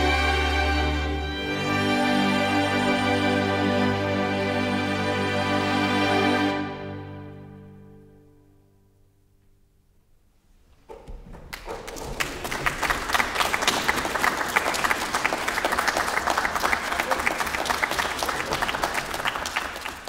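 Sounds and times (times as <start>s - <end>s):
crowd applauding: 11.4s - 20.0s.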